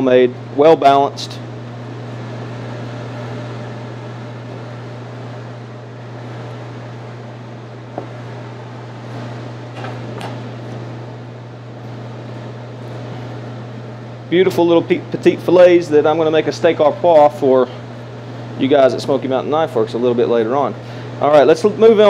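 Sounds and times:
ventilation fan hum: 0:00.0 - 0:22.0.

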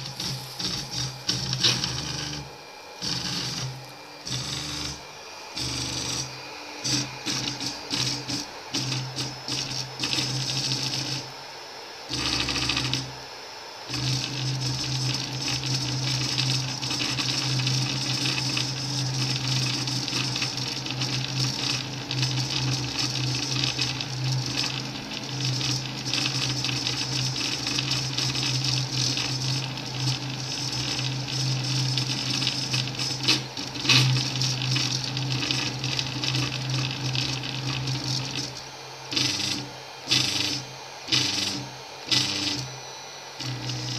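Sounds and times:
fan hiss: 0:00.0 - 0:04.3
printer motors humming: 0:00.0 - 0:43.9.

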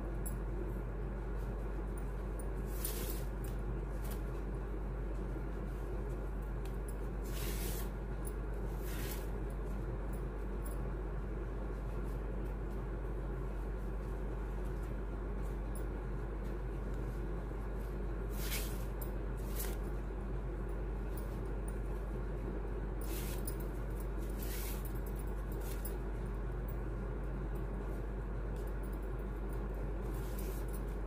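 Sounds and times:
steady low hum: 0:00.0 - 0:31.0
ribbon rustling swishes: 0:02.7 - 0:04.4, 0:07.2 - 0:07.9, 0:08.7 - 0:09.4, 0:17.8 - 0:19.9, 0:23.0 - 0:25.9, 0:30.1 - 0:31.0.

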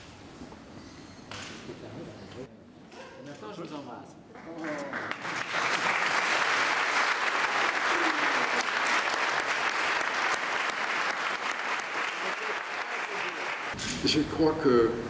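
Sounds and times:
audience applauding: 0:04.4 - 0:13.8.

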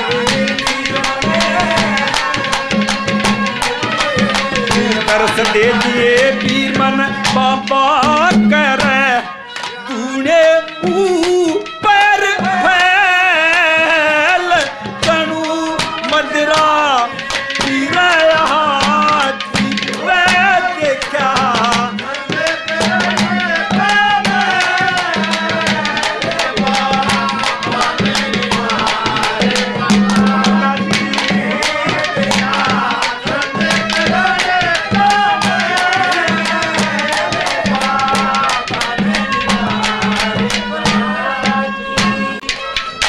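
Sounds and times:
wavering ornamented melody instrument: 0:00.0 - 0:12.8.

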